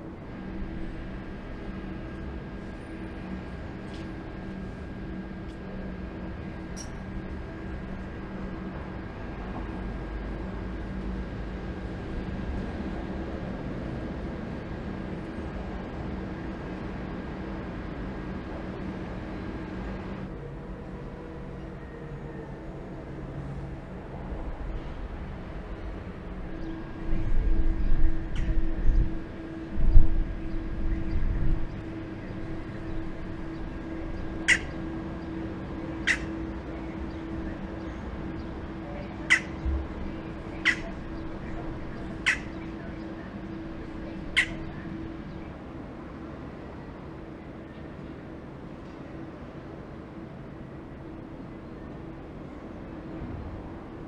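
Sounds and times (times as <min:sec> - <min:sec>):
steady low hum: 0:00.0 - 0:54.0
bird short calls: 0:36.1 - 0:36.4, 0:39.2 - 0:39.6, 0:42.2 - 0:42.6.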